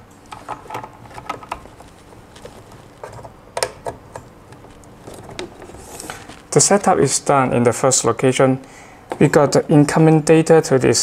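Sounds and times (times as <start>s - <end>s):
plastic cable clicks and rattles: 0.3s - 6.4s.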